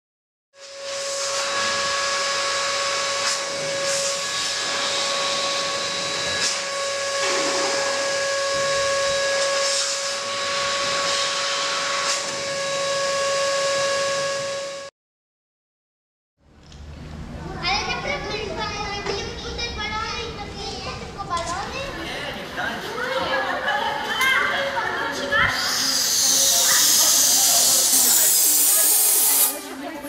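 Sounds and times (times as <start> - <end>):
electric balloon pump running: 0.6 - 14.9, 24.3 - 30.0.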